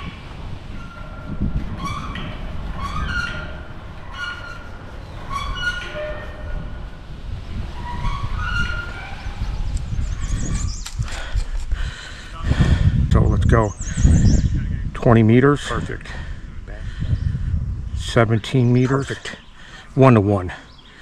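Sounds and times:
wind buffeting microphone: 0:00.0 - 0:19.7
short high squeak: 0:00.7 - 0:06.8, 0:07.8 - 0:09.7.

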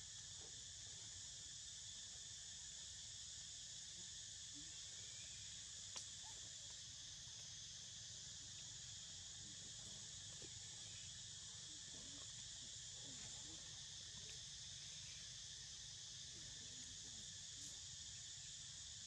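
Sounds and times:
high-pitched insect chorus: 0:00.0 - 0:19.0.

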